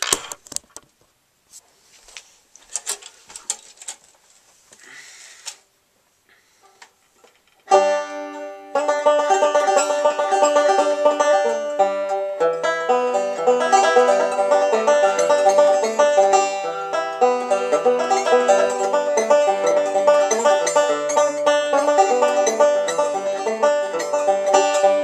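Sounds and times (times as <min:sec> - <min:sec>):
banjo picking: 0:07.6 - 0:25.0.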